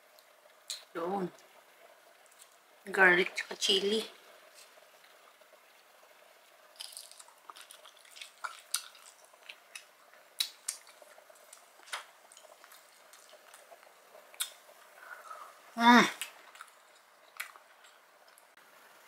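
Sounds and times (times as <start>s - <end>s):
chewing: 6.8s - 14.6s, 16.2s - 18.5s.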